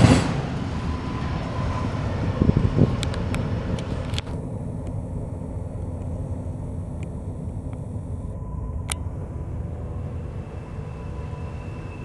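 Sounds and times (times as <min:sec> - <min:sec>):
freight train wheels rumbling: 0:00.0 - 0:12.0.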